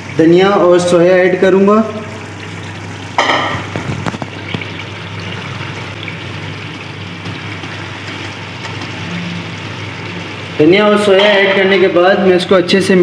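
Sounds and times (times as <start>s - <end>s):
pot simmering: 0.0s - 13.0s.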